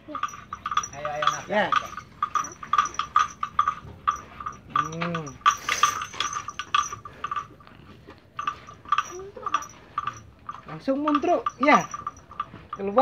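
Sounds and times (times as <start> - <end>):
cow clacking bar in mouth: 0.2 - 12.8.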